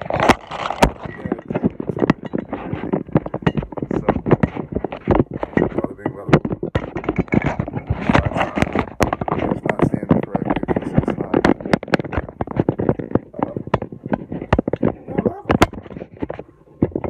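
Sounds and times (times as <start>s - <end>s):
phone handling knocks and rubbing: 0.0s - 17.0s
muffled talk: 3.8s - 4.6s, 5.6s - 6.4s, 8.0s - 11.5s, 15.0s - 15.6s.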